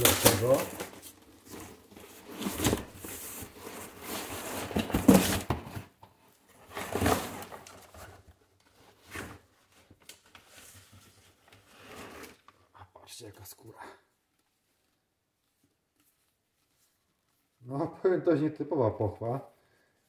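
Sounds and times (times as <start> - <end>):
cardboard and paper rustling: 0.0 - 12.7.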